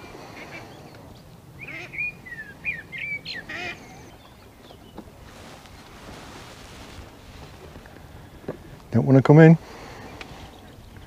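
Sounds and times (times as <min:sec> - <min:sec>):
faint outdoor background: 0:00.0 - 0:11.0
ducks quacking: 0:01.6 - 0:02.1, 0:03.2 - 0:04.1.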